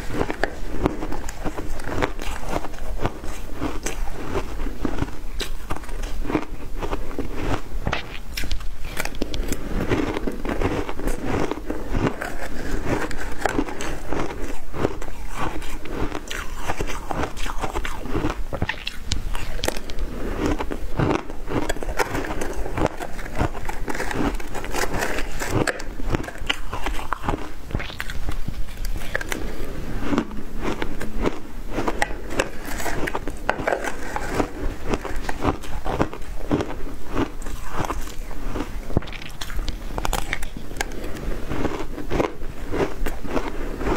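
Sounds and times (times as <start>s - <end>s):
ice chunks crunched by chewing: 0.0s - 43.9s.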